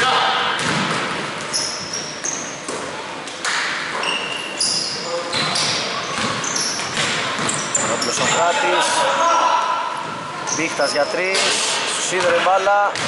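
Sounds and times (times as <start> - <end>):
shoes squeaking on hardwood: 3.9 - 8.4.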